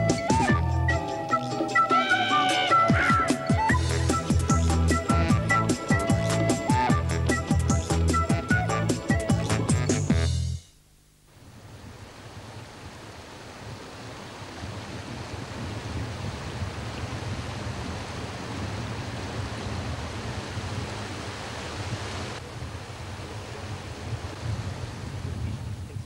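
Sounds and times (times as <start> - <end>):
rushing outdoor ambience: 11.3 - 26.0.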